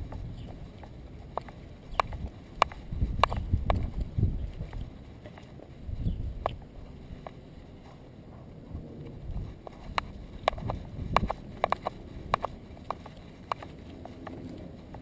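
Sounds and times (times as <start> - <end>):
dog's steps clicking and tapping: 0.0 - 5.8, 9.4 - 15.0
camera mount rubbing and rumbling: 0.0 - 15.0.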